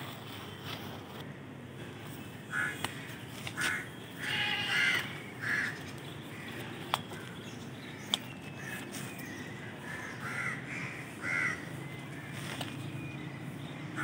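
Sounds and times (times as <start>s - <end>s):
crows cawing: 2.5s - 7.3s, 9.6s - 12.4s.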